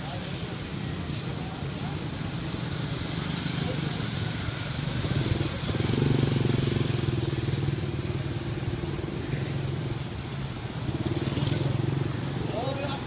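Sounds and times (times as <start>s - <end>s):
street traffic: 0.0s - 13.0s
scooter engine running: 3.0s - 12.3s.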